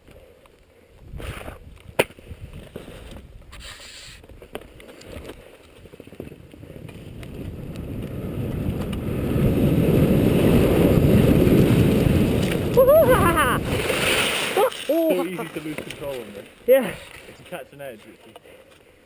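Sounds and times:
wind rushing over microphone: 6.2s - 14.2s
skis scraping on slushy snow: 7.1s - 18.2s.

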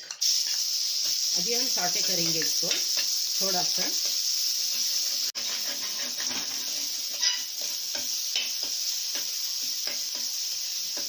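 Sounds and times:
paste sizzling in hot oil: 0.0s - 11.0s
spoon stirring and scraping pan: 0.0s - 11.0s.

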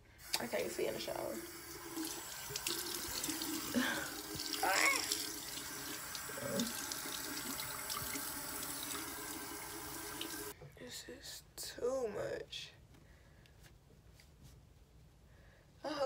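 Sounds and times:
faucet running into sink: 0.2s - 10.5s.

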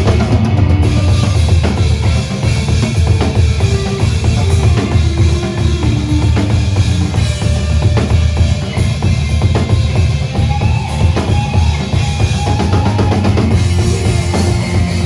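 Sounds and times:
drum kit kick and snare: 0.0s - 15.0s
heavy bass line: 0.0s - 15.0s.

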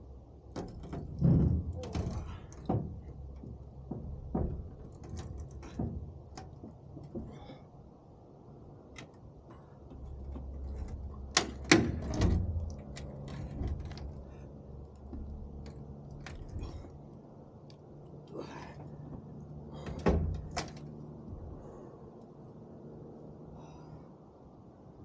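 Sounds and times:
sharp clicks and knocks: 0.5s - 7.5s, 8.9s - 17.8s, 19.1s - 21.6s.

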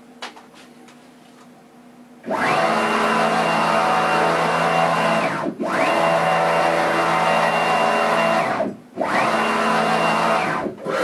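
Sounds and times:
cnc motors whining: 2.2s - 11.0s.

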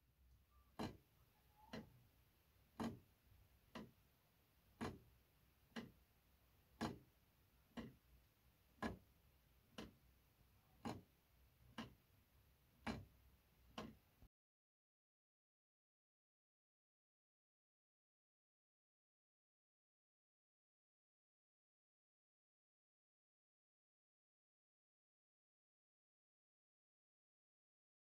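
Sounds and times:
pendulum clock ticking: 0.3s - 14.3s.

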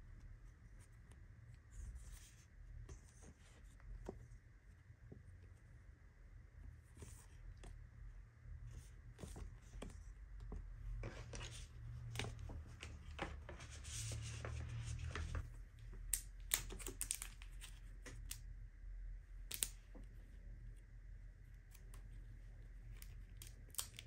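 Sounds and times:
paper sheets rustling: 11.0s - 15.4s.

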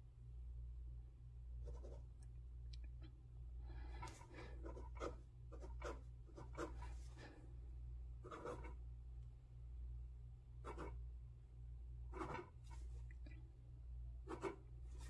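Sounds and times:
low steady hum: 0.0s - 15.0s
gel pen scratching on paper: 1.6s - 2.0s, 4.1s - 7.1s, 8.2s - 8.8s, 10.6s - 11.0s, 12.1s - 12.9s, 14.3s - 15.0s.

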